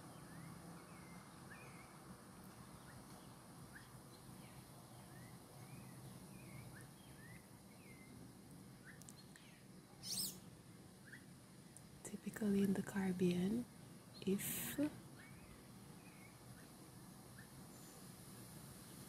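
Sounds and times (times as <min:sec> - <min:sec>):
faint bird chirps: 0:00.0 - 0:02.0, 0:02.6 - 0:08.2, 0:08.8 - 0:11.4, 0:13.8 - 0:18.1
low steady hum: 0:00.0 - 0:19.0.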